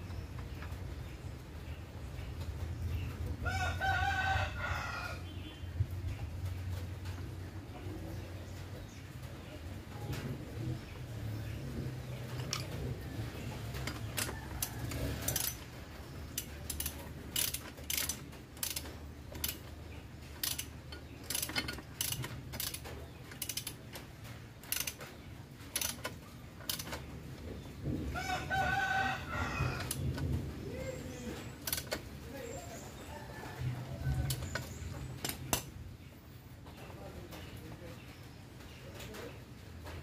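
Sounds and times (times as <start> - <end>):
rooster crowing: 3.4 - 5.2, 28.1 - 30.0
socket wrench clicking: 13.8 - 15.7, 16.3 - 19.7, 20.4 - 23.8, 24.6 - 25.0, 25.7 - 27.0, 31.6 - 32.0, 34.2 - 35.7.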